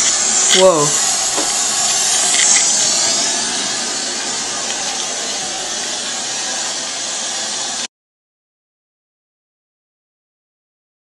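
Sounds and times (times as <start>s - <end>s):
steady loud hiss: 0.0s - 7.9s.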